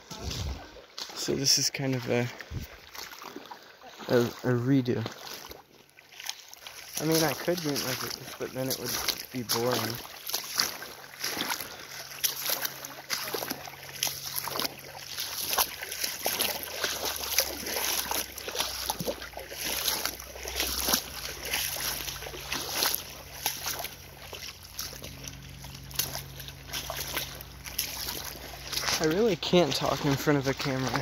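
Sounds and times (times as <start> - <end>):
feet wading and splashing water: 0.0 - 31.0.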